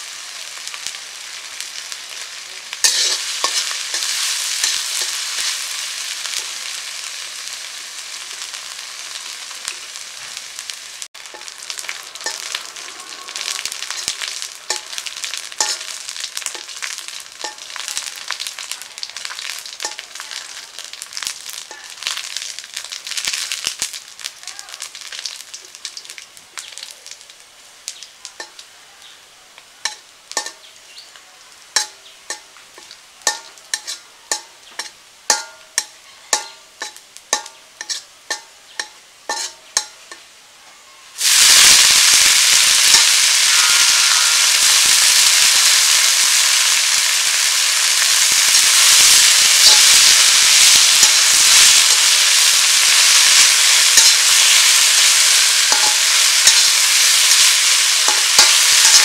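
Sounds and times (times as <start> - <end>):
food sizzling in oil: 0.0 - 59.0
metal spatula scraping a wok: 2.7 - 7.0, 11.2 - 18.7, 31.8 - 40.2, 48.8 - 59.0.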